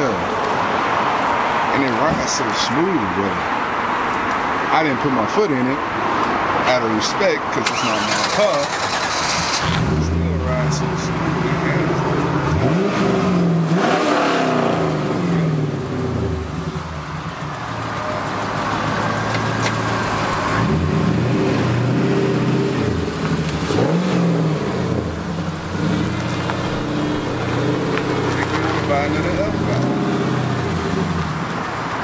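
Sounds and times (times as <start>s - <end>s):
car engine idling and revving: 7.6s - 32.0s.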